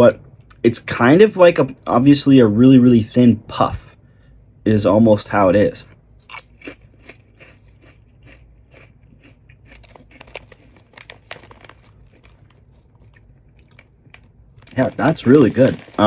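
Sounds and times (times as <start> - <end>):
crunchy chips being chewed: 6.2 - 16.0
hand rustling in chip bag: 9.6 - 16.0.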